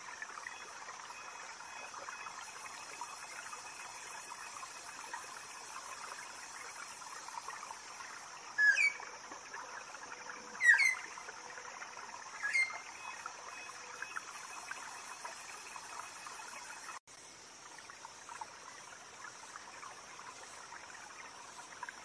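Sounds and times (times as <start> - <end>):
chorus of insects: 0.0 - 22.0
bird sweeping calls: 8.6 - 9.0, 10.6 - 11.1, 12.4 - 12.8.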